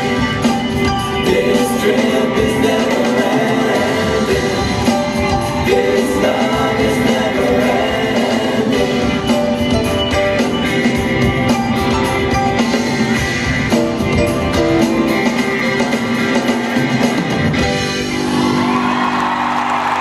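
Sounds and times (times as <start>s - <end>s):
pop-rock band playing: 0.0s - 20.0s
audience applause and cheering: 17.9s - 20.0s.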